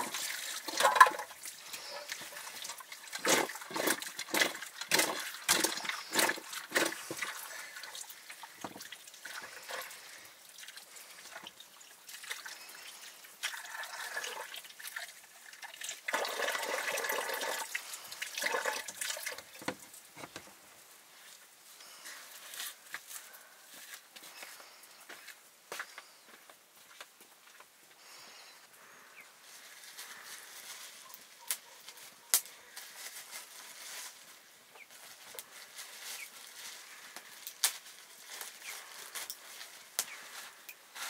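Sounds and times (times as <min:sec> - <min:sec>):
water pouring and splashing: 0:00.0 - 0:20.4.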